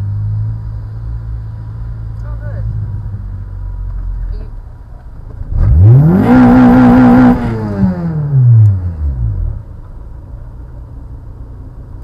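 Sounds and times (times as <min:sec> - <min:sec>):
traffic noise: 0:00.0 - 0:12.0
car engine revving: 0:05.3 - 0:10.0.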